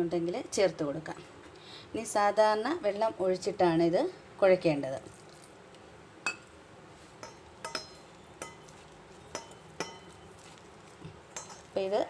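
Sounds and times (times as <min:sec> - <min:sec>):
clinks against steel bowl: 0:06.3 - 0:06.5, 0:07.2 - 0:10.3, 0:11.3 - 0:11.7.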